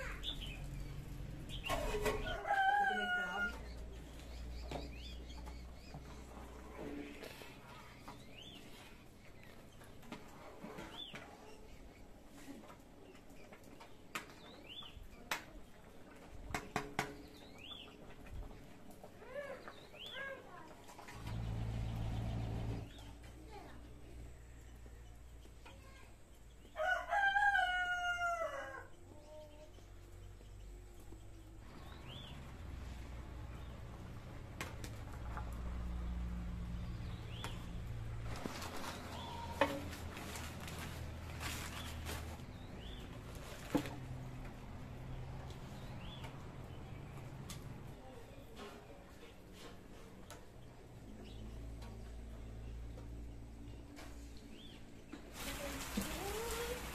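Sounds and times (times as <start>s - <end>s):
birds chirping: 0.0s - 10.2s, 17.1s - 18.2s, 28.3s - 34.4s, 35.9s - 39.6s, 41.7s - 43.5s.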